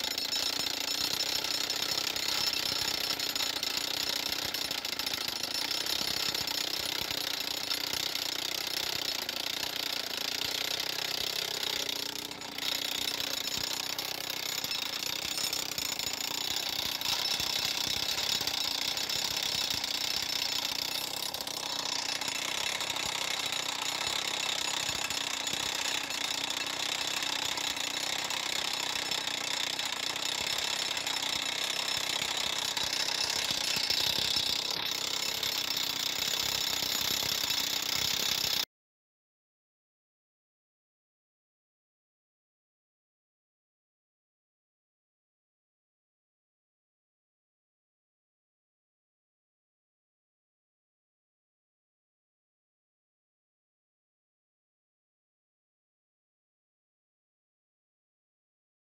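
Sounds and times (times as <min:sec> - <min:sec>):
rock drill hammering stone: 0:00.0 - 0:38.7.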